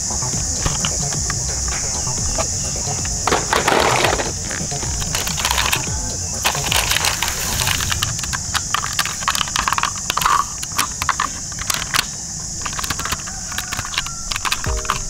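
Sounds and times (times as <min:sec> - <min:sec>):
steady high hiss: 0:00.0 - 0:15.0
plastic toy cars clicking and rattling: 0:02.4 - 0:15.0
low rumble: 0:04.2 - 0:10.2.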